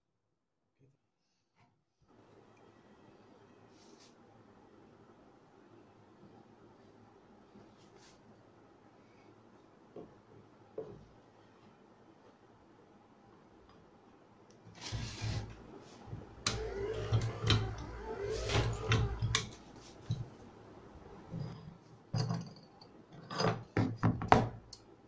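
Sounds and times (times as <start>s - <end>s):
electric press humming: 15.2s - 20.2s
press clunking and knocking: 16.1s - 20.3s.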